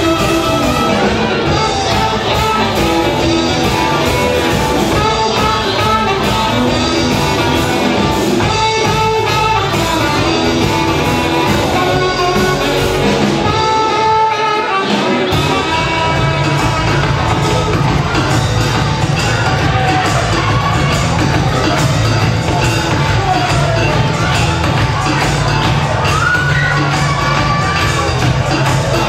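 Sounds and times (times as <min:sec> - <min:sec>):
rock band playing: 0:00.0 - 0:29.0.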